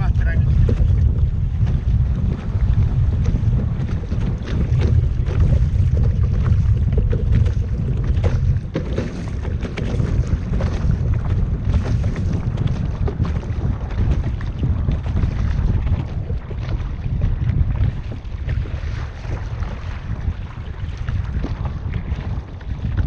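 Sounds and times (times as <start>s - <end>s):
small water splashes: 0.0s - 23.0s
wind buffeting microphone: 0.0s - 23.0s.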